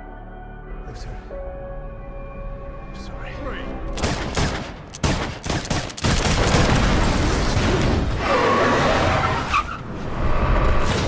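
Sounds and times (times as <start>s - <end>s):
film music: 0.0s - 11.0s
gunfire burst: 4.0s - 7.6s
crash and vehicle rumble: 6.6s - 11.0s.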